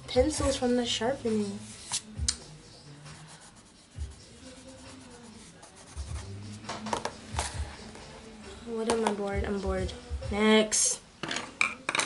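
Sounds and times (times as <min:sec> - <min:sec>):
hand rubbing paper: 0:01.3 - 0:02.2, 0:02.8 - 0:08.3
pencil scratching on paper: 0:03.0 - 0:06.6.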